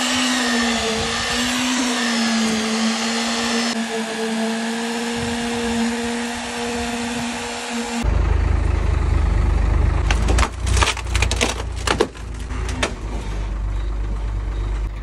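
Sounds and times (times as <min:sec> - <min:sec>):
truck engine rumbling: 0:00.0 - 0:15.0
wood and gravel cracking under wheels: 0:10.0 - 0:13.6.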